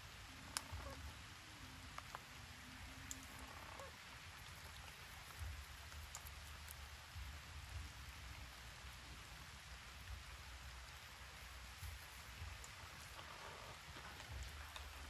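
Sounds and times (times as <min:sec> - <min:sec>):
faint outdoor hiss: 0:00.0 - 0:15.0
low rumbles: 0:00.2 - 0:15.0
faint high ticks: 0:00.4 - 0:01.1, 0:03.0 - 0:07.9.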